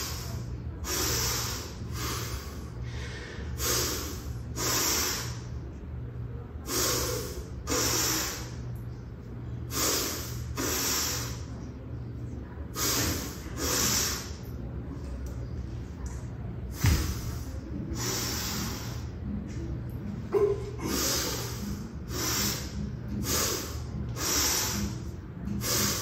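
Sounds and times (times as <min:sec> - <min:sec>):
man breathing hard: 0:00.0 - 0:05.5, 0:06.6 - 0:08.6, 0:09.7 - 0:11.5, 0:17.0 - 0:19.1, 0:20.8 - 0:26.0
steady low hum: 0:00.0 - 0:26.0.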